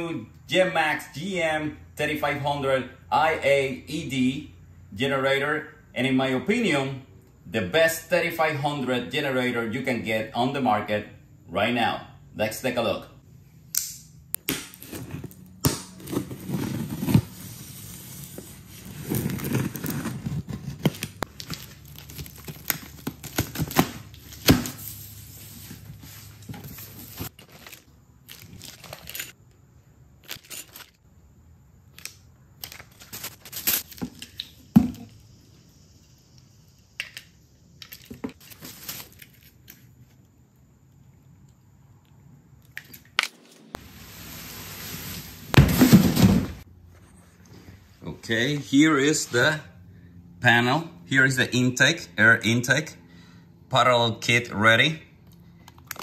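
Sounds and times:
packing tape tearing: 14.4s - 25.5s, 26.5s - 29.4s, 31.9s - 34.1s
knife cutting cardboard: 14.5s - 21.2s
plastic wrap crinkling: 14.8s - 25.6s, 26.3s - 29.3s.

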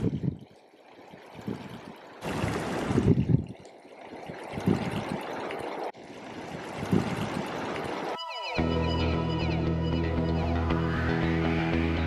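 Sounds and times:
creek splashing over rocks: 0.0s - 8.2s.

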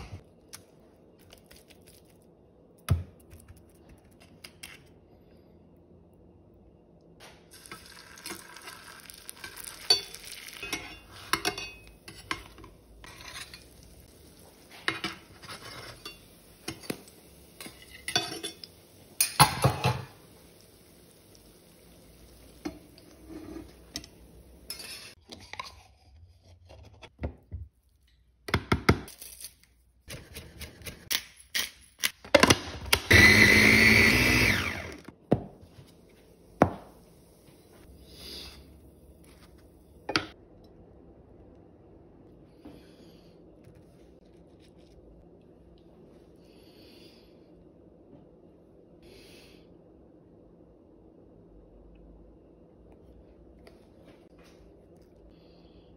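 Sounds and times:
patty frying in oil: 7.2s - 25.2s
metal utensils clinking on pans: 9.3s - 13.8s, 14.7s - 20.2s, 22.6s - 25.2s.

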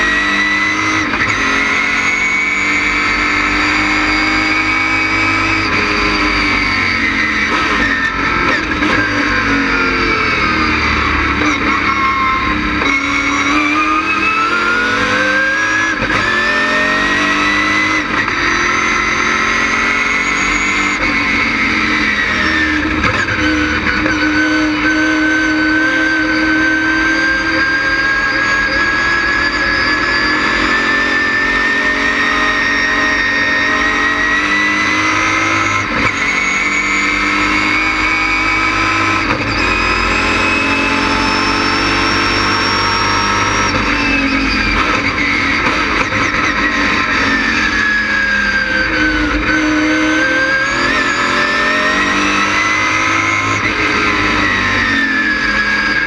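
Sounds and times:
race car engine revving: 0.0s - 56.0s.

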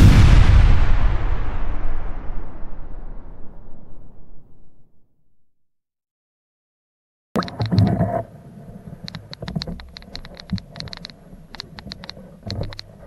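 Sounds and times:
rapid underwater clicks: 7.4s - 8.3s, 9.0s - 13.0s.

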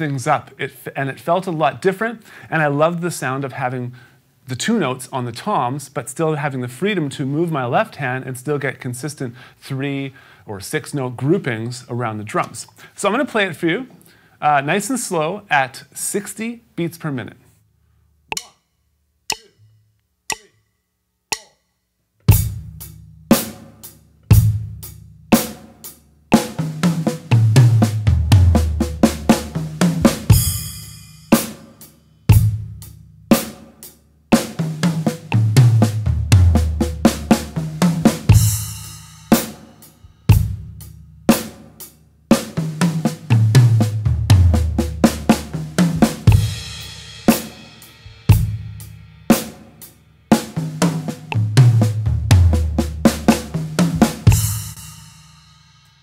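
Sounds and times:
drum kit beat: 18.3s - 18.7s, 19.3s - 19.7s, 20.3s - 20.7s, 21.3s - 21.6s, 22.3s - 56.0s
tom drum fill: 26.4s - 31.7s, 34.4s - 40.8s, 42.3s - 49.5s, 50.3s - 55.2s.

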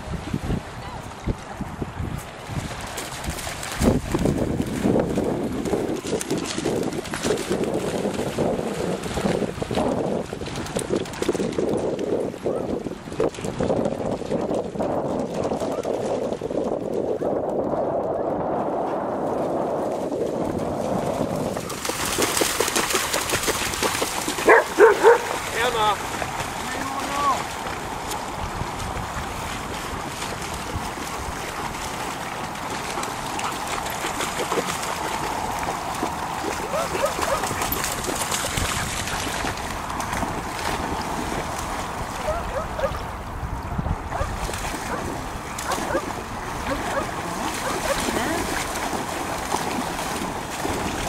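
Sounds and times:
wind buffeting microphone: 0.0s - 51.0s
dog splashing through water: 2.3s - 12.1s, 19.2s - 43.1s, 44.1s - 51.0s.

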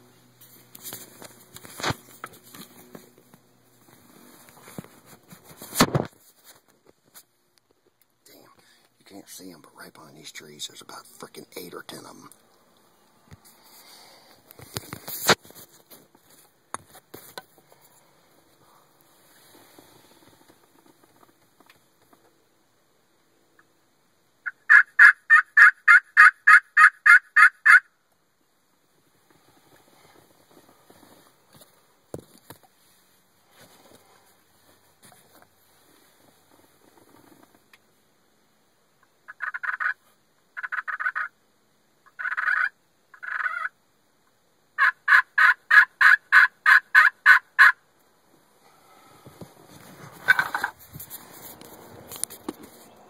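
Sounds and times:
turkey yelps: 24.4s - 27.9s, 39.3s - 40.0s, 40.6s - 41.4s, 42.1s - 43.8s, 44.8s - 47.8s, 50.2s - 50.7s.

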